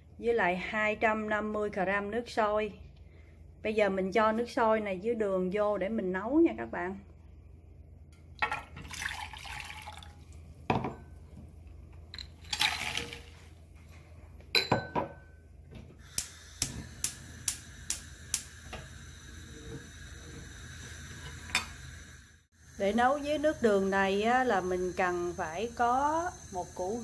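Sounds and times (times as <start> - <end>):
boiling water pouring into saucepan: 8.6 - 10.6, 12.4 - 13.6
gas burner hissing: 15.7 - 27.0
gas hob igniter clicking: 16.0 - 20.2.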